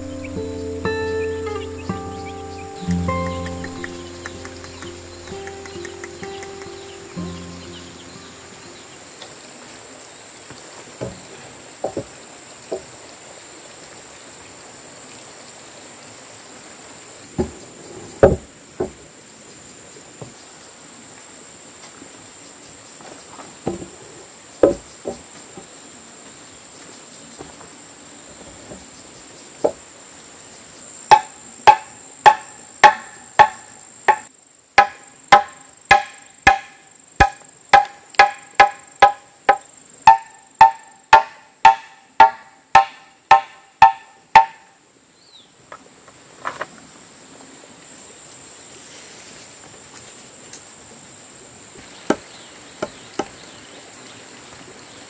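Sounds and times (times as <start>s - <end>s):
machete chopping wood: 31.1s - 44.6s.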